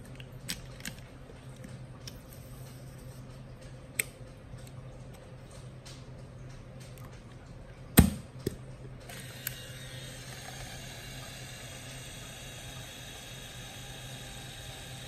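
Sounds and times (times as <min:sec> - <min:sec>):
camera film motor whirring: 0:09.0 - 0:15.0.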